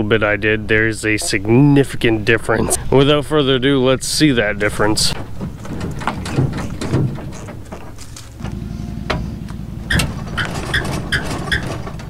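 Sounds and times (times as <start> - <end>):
diesel truck engine running: 5.2 - 12.0.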